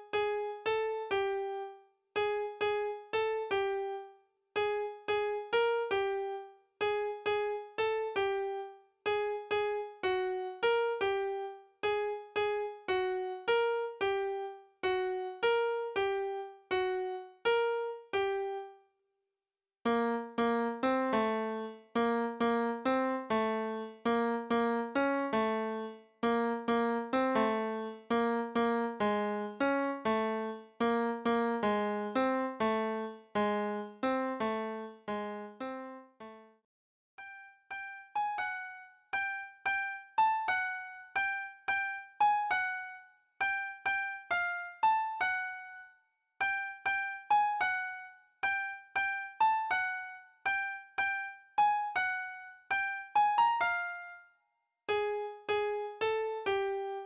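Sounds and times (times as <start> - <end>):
piano melody: 0.0 - 18.7, 19.9 - 36.4, 37.2 - 45.8, 46.4 - 54.2, 54.9 - 57.0.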